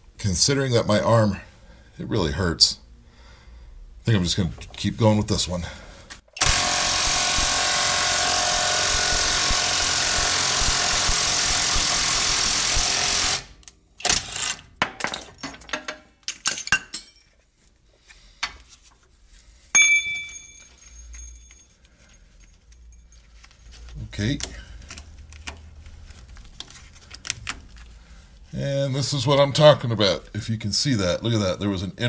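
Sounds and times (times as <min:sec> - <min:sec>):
impact wrench hammering: 0:06.4 - 0:15.2
tools and metal parts clattering: 0:14.1 - 0:17.4, 0:19.8 - 0:25.1
sharp metal clink: 0:19.8 - 0:21.7.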